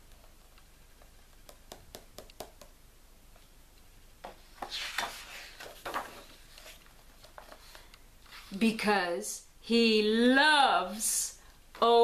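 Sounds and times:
paper rustling: 4.6s - 8.6s.

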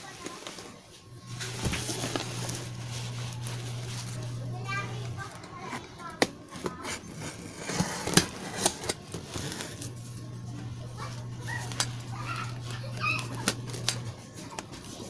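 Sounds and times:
low hum: 1.0s - 5.8s, 9.8s - 14.3s.

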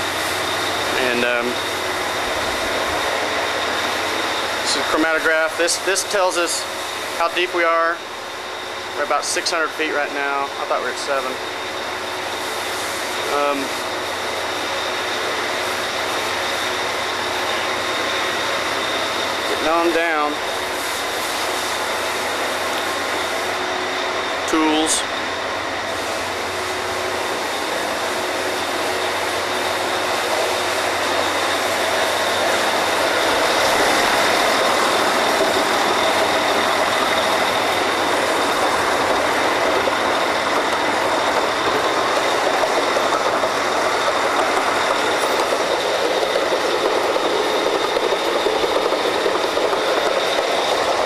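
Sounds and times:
drilling rig machinery din: 0.0s - 51.0s
machinery whining tones: 0.0s - 51.0s.

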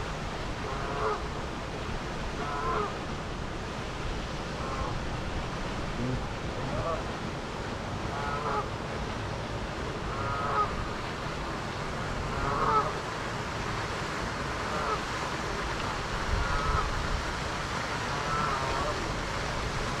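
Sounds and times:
geese honking: 10.1s - 10.7s, 12.3s - 13.0s, 14.6s - 15.0s, 16.4s - 16.9s, 18.1s - 19.0s.

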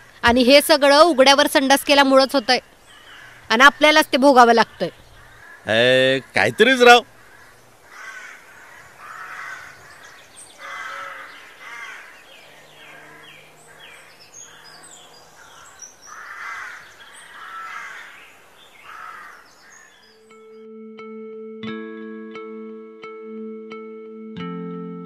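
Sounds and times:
small birds chirping faintly: 0.0s - 20.7s
crows cawing: 2.6s - 3.9s, 4.6s - 20.2s.

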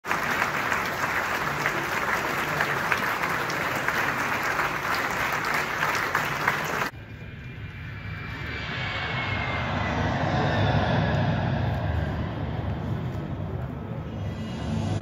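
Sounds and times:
audience applause: 0.0s - 6.9s
low rumble: 6.9s - 15.0s.

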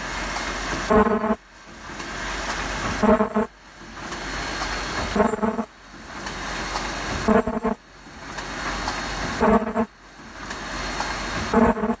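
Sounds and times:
short buzzing tone: 0.9s - 1.4s, 3.0s - 3.5s, 5.2s - 5.7s, 7.3s - 7.8s
welding machine hiss: 8.4s - 12.0s.

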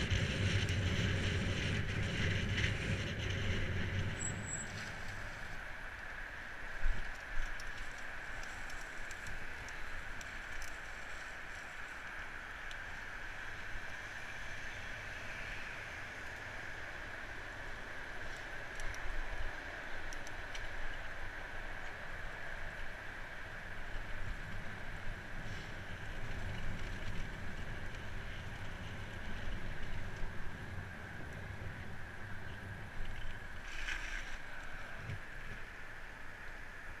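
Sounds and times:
bicycle tyres rolling: 0.0s - 37.0s
wind rumble on microphone: 0.0s - 37.0s
small clicks and rattles: 7.0s - 12.8s.

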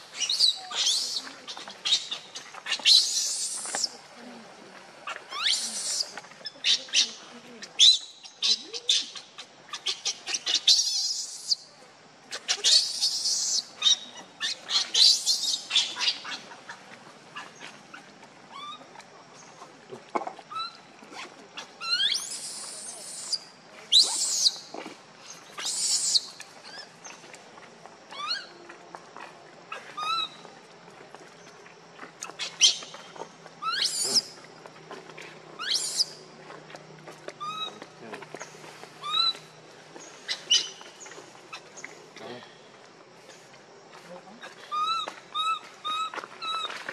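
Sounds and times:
baby monkey squealing: 0.2s - 1.2s, 5.3s - 7.1s, 7.8s - 11.6s, 12.5s - 16.4s, 21.6s - 24.6s, 25.6s - 26.8s, 33.6s - 34.3s, 35.6s - 36.1s, 37.4s - 37.8s, 39.0s - 39.4s, 44.7s - 46.7s.

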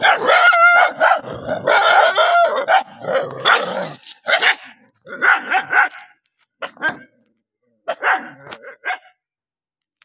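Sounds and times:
dog yelping: 0.0s - 5.9s
dogs barking angrily: 0.0s - 7.1s, 7.9s - 9.1s.

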